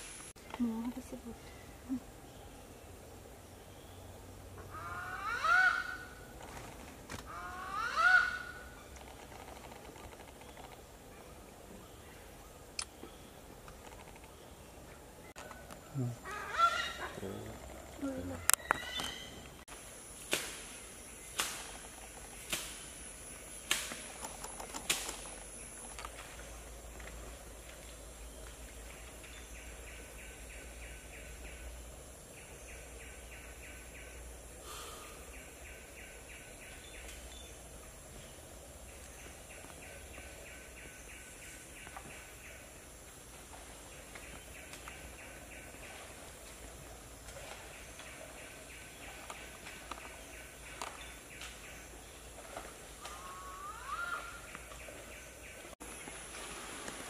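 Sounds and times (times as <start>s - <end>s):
high insect hiss: 0.0s - 3.6s, 15.9s - 57.0s.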